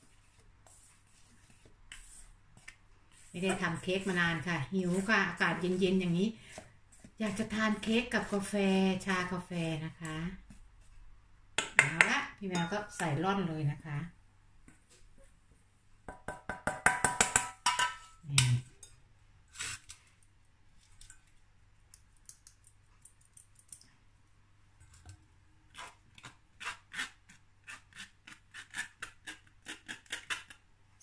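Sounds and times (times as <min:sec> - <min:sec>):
powder sifted through mesh sieve: 0:00.0 - 0:11.0
bowl and spatula knocking sieve: 0:16.1 - 0:18.6.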